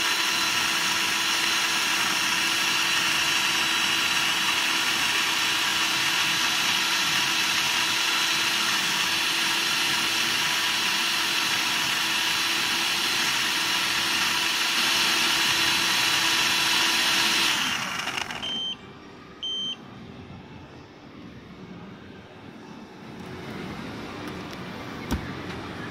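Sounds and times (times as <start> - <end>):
blender motor running: 0.0 - 18.6
short beeps: 18.4 - 19.9.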